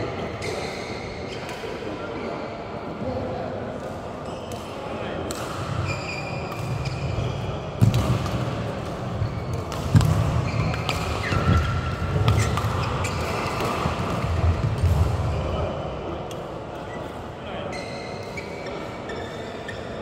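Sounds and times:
racket hitting shuttlecock: 5.2s - 5.7s, 7.8s - 15.1s
sneakers squeaking on court: 5.6s - 8.0s, 9.2s - 15.5s.

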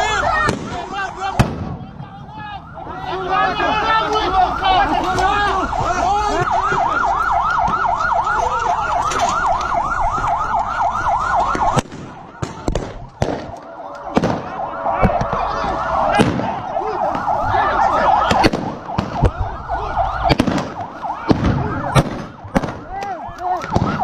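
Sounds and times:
vehicle siren yelping: 0.0s - 24.0s.

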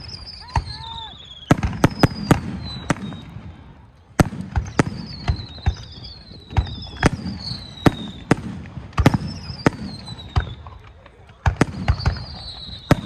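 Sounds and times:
firework whistles sliding down: 0.0s - 3.4s, 4.6s - 8.3s, 11.9s - 13.0s.

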